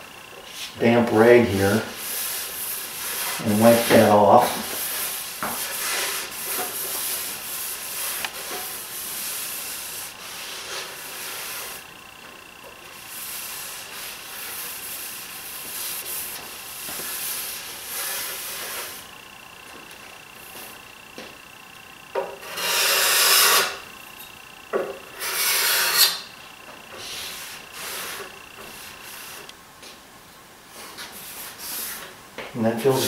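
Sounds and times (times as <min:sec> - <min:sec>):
damp rag wiping wood: 0:13.1 - 0:19.0.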